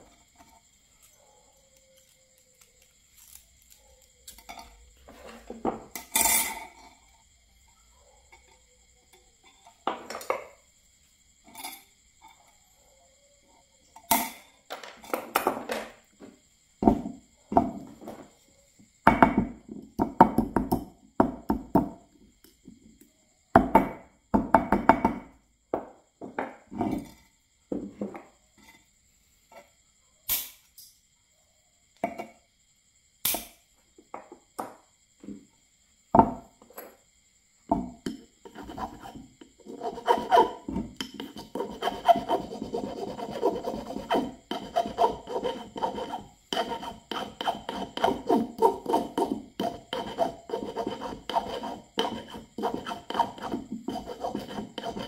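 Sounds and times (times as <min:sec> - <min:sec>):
file rasping on wire: 0:38.4 - 0:55.0.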